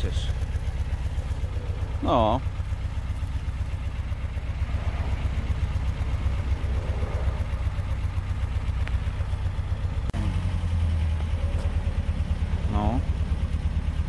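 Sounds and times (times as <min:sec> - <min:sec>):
car engine idling: 0:00.0 - 0:14.0.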